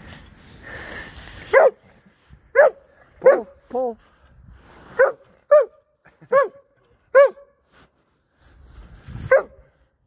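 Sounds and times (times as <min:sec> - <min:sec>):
dog barking: 0:01.5 - 0:01.8, 0:02.5 - 0:03.6, 0:05.0 - 0:07.5, 0:09.3 - 0:09.6.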